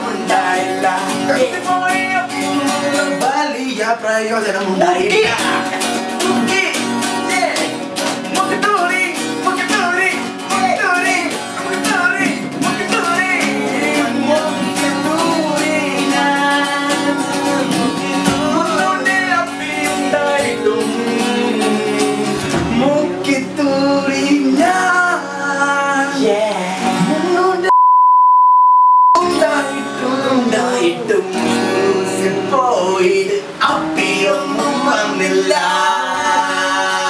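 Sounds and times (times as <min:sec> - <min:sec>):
acoustic guitar strumming: 0:00.0 - 0:27.7, 0:29.2 - 0:37.0
men singing: 0:00.0 - 0:27.7, 0:29.2 - 0:37.0.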